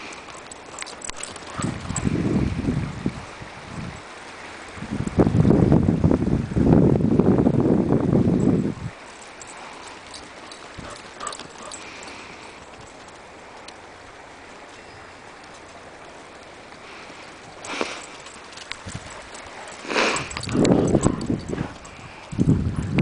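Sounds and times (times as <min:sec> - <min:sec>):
dogs running on dirt: 0:00.0 - 0:03.0, 0:08.9 - 0:23.0
wind gust on microphone: 0:01.4 - 0:09.1, 0:17.4 - 0:23.0.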